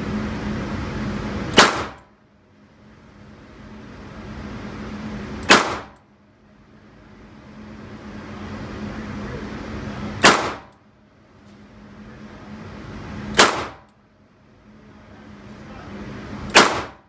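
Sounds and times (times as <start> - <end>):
revolver shots echoing: 10.2 - 10.7.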